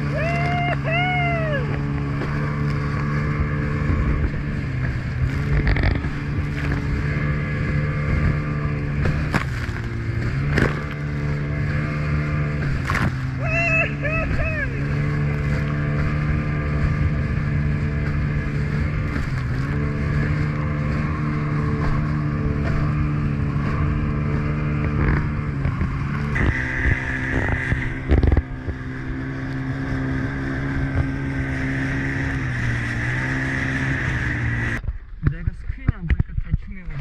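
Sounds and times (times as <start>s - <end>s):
outboard motor running: 0.0s - 37.0s
wind and spray hiss: 24.8s - 34.8s.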